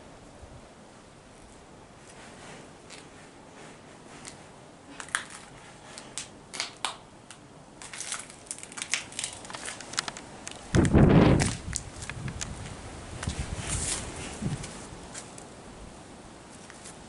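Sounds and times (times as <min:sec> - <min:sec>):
footsteps crunching over rubble: 0:07.8 - 0:15.4.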